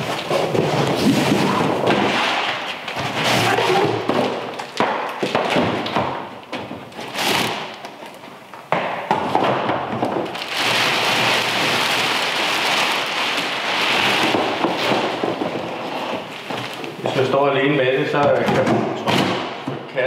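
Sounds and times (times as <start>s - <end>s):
plastic bag crinkling: 10.1s - 17.7s.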